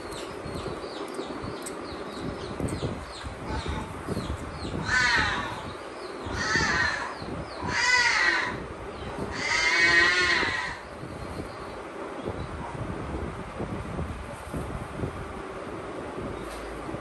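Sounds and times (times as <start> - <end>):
lion cub mewing calls: 9.3 - 10.8.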